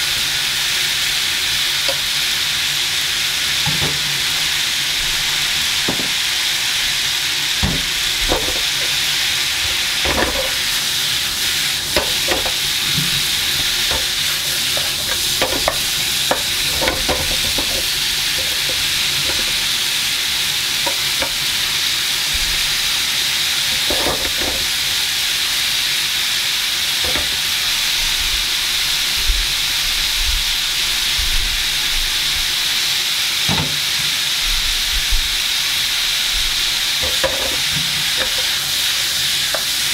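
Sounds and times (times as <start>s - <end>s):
vegetables sizzling in frying pan: 0.0s - 39.9s
knocks and scrapes in pan: 7.6s - 9.0s, 9.6s - 10.8s, 11.9s - 19.7s, 23.7s - 24.7s, 37.0s - 38.6s.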